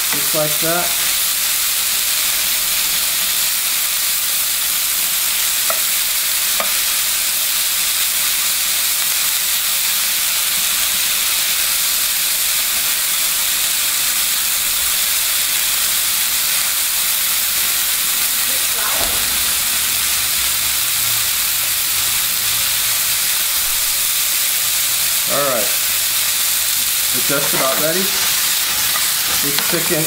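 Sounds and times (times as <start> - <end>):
food sizzling in a frying pan: 0.0 - 30.0
metal tongs tossing food: 26.4 - 30.0.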